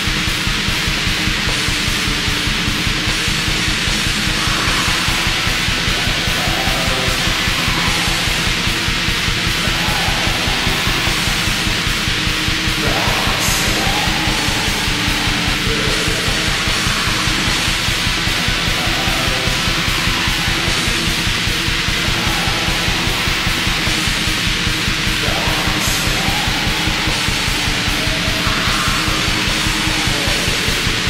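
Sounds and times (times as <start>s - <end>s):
distorted guitars: 0.0s - 31.0s
fast drumming: 0.0s - 31.0s.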